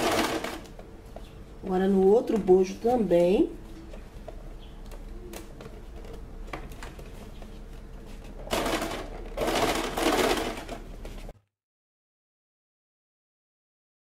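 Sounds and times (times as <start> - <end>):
sewing machine stitching: 0.0 - 0.6, 8.5 - 10.9.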